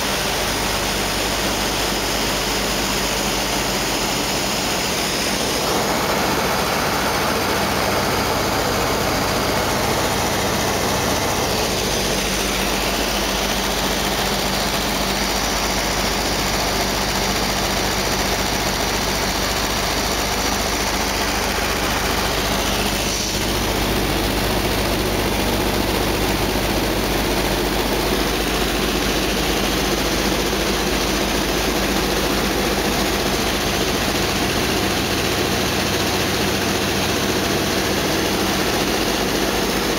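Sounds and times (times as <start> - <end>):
airplane engine and propeller drone: 5.0 - 16.8.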